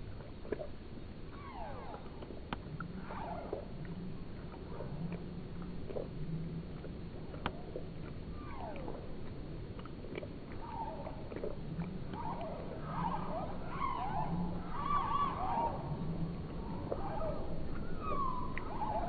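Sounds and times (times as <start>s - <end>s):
slowed cat lapping slurps: 0.0s - 19.0s.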